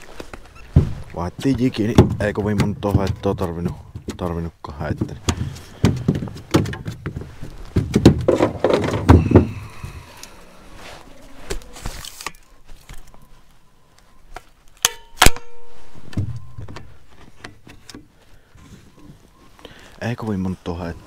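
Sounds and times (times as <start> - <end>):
knocks and thumps in boat: 0.7 - 10.0.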